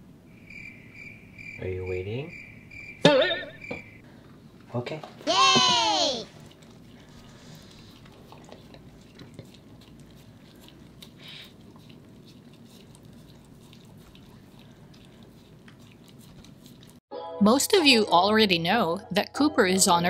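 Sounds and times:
dog gnawing a bone: 6.3 - 17.0.

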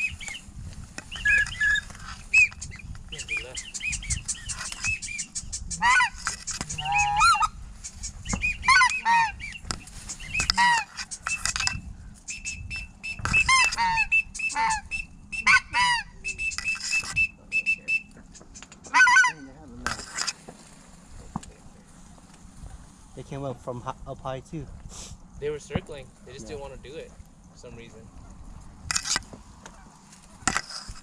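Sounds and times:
high steady whistles: 0.0 - 19.0
waterfowl honking: 1.1 - 11.7, 12.3 - 20.4.

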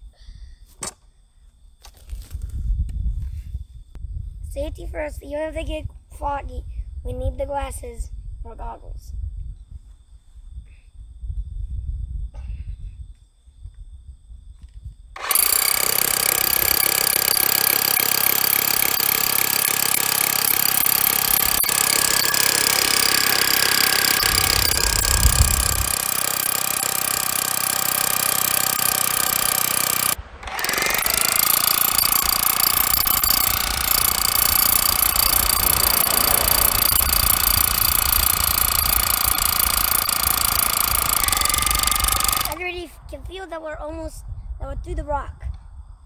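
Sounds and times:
power drill boring through rock: 15.2 - 42.6.

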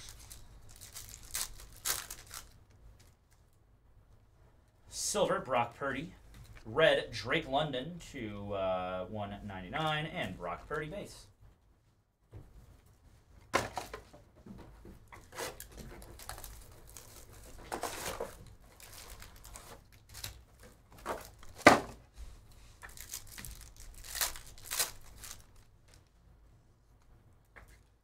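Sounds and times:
plastic wrappers crinkling and tearing: 0.0 - 3.4, 15.2 - 21.7, 22.6 - 26.1.

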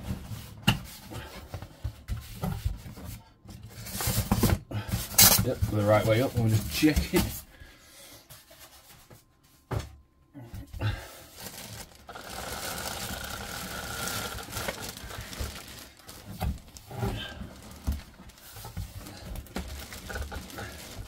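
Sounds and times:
plastic wrapping crinkling: 11.2 - 21.0
cardboard box rustling: 11.3 - 21.0.

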